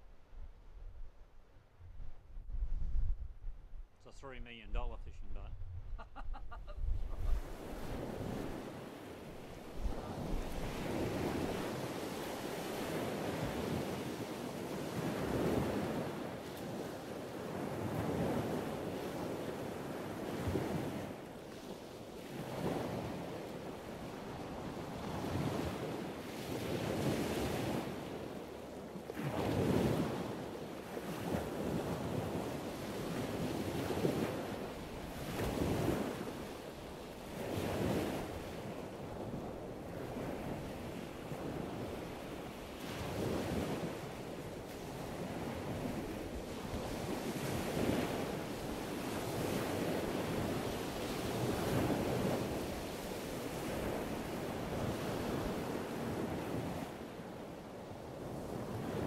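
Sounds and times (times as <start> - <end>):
wind on microphone: 0.0 - 4.0, 4.6 - 16.9, 37.1 - 57.0
waves washing in: 6.2 - 59.0.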